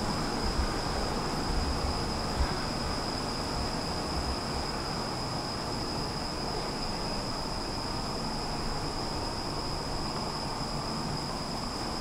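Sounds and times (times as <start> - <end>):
high-pitched whine: 0.0 - 12.0
metro platform rumble and hiss: 0.0 - 12.0.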